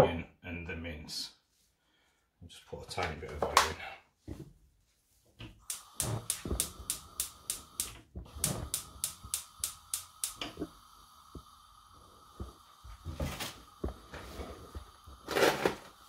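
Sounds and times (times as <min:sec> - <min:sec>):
faint gas hiss: 0:05.4 - 0:16.0
gas igniter clicking: 0:05.5 - 0:16.0.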